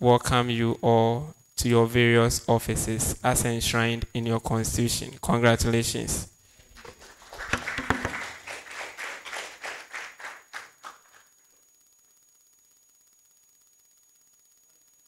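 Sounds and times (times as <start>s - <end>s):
people applauding: 6.8s - 11.3s.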